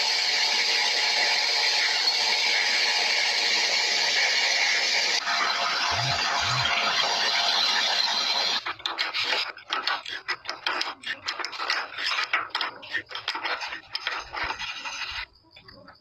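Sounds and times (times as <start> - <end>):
steady machine noise: 0.0 - 15.5
metal being filed by hand: 8.4 - 15.5.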